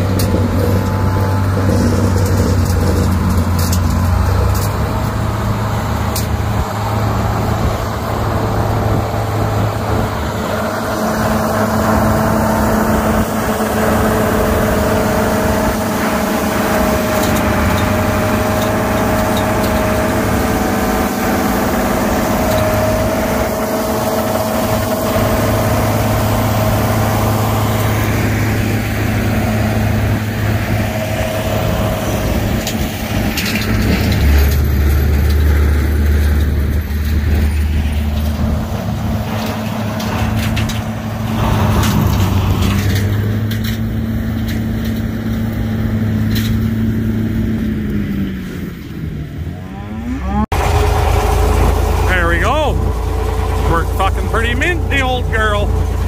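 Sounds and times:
tractor engine running: 0.0s - 49.5s, 50.4s - 56.0s.

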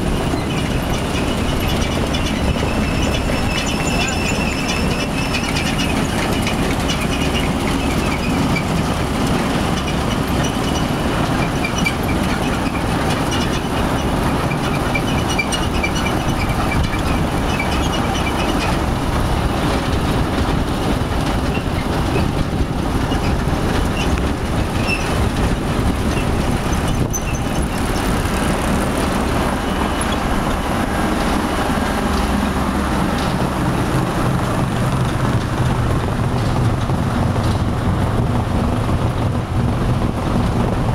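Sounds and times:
conveyors running: 0.0s - 40.9s
faint high squeaks: 0.3s - 8.6s.

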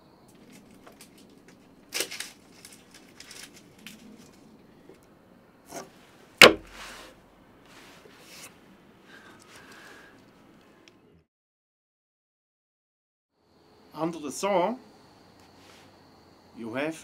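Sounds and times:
wood knocking and scraping on wood: 5.7s - 7.1s.

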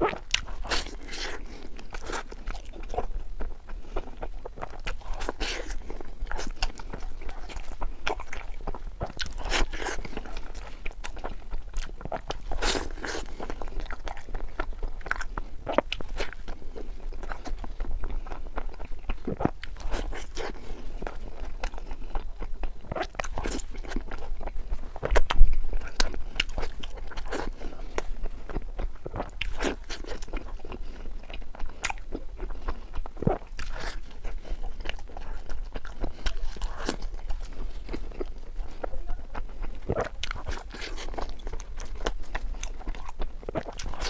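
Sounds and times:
crunching bites of pastry: 0.0s - 3.1s, 3.7s - 38.4s, 39.6s - 44.0s.

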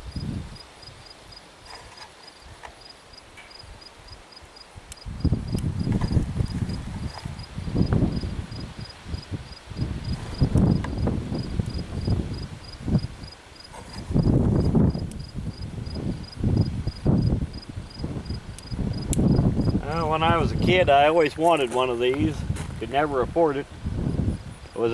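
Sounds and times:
wind rumble on microphone: 0.0s - 2.7s, 3.6s - 24.9s
cricket chirping: 2.0s - 19.8s.

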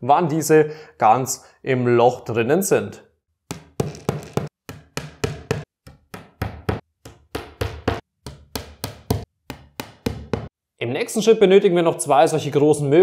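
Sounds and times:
hammer knocking dowels into wood: 3.5s - 10.5s.

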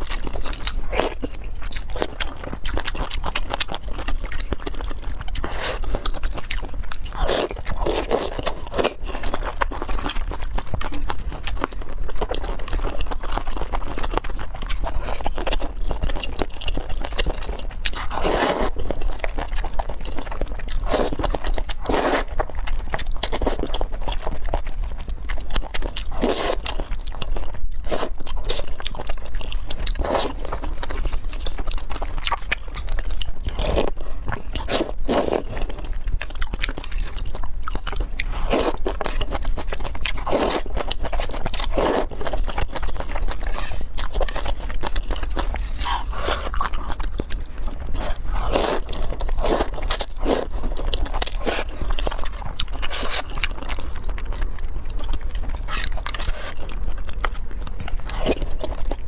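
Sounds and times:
slurping noodles: 18.1s - 18.8s, 20.8s - 22.3s, 34.6s - 35.5s, 41.7s - 42.2s, 48.1s - 50.5s.

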